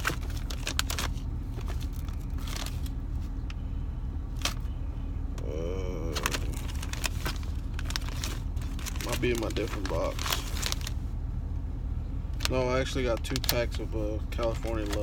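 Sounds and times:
plastic packaging crinkling: 0.0s - 3.4s, 6.1s - 11.0s, 12.4s - 15.0s
steady low hum: 0.0s - 15.0s.

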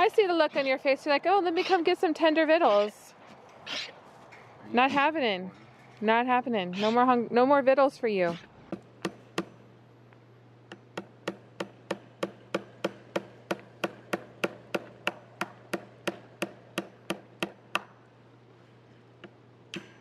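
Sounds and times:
hammer striking staples into wood: 10.9s - 17.9s.

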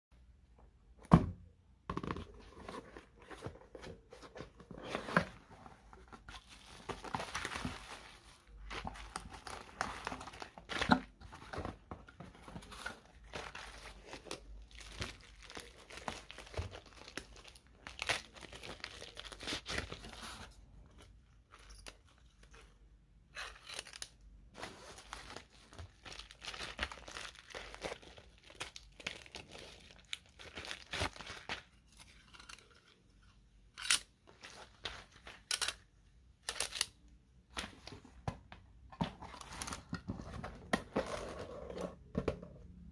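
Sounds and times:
bubble wrap crinkling and tearing: 6.0s - 11.2s, 12.6s - 33.0s, 34.3s - 35.6s.

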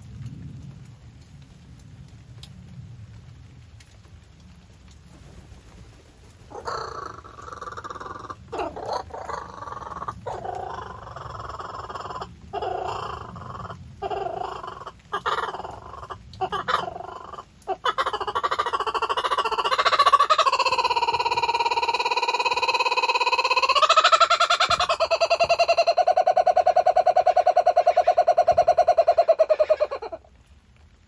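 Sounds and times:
kookaburra laughing call: 6.5s - 30.2s.

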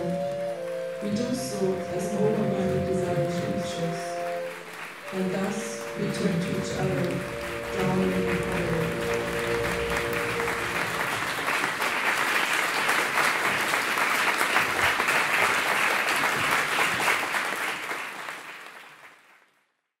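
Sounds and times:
held music tones: 0.0s - 11.8s
audience applauding: 0.0s - 19.6s.

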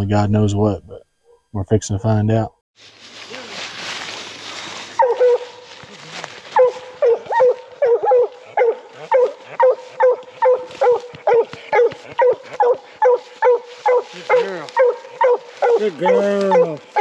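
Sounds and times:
dog barking: 5.0s - 5.6s, 6.5s - 17.0s.

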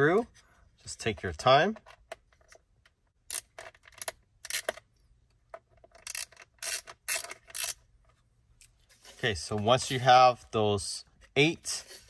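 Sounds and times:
screwdriver clicking and scraping: 3.3s - 4.8s, 5.8s - 7.8s.

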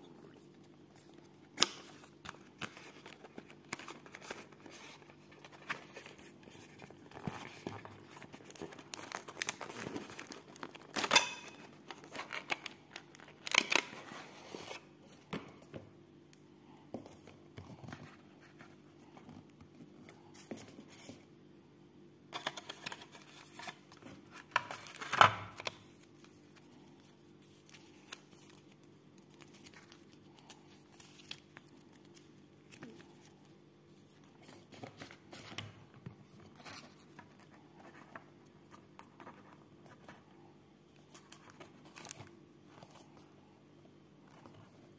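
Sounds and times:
cardboard and paper rustling: 0.4s - 15.9s, 22.3s - 40.3s, 40.9s - 43.4s.

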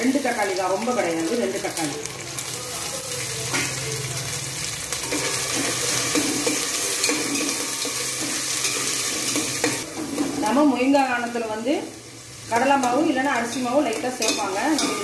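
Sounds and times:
vegetables sizzling in hot oil: 0.0s - 15.0s
steel spoon scraping a pot: 5.0s - 9.9s.

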